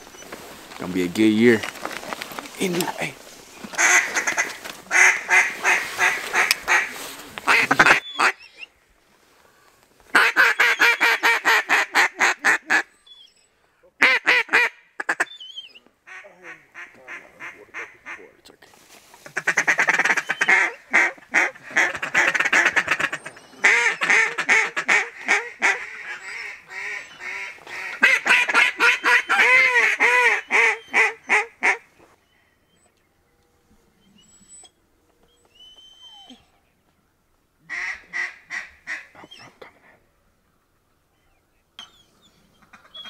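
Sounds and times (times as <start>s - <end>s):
duck call quacking: 3.8s - 8.4s, 10.1s - 12.9s, 14.0s - 15.3s, 16.1s - 18.3s, 19.2s - 31.8s, 37.7s - 39.1s.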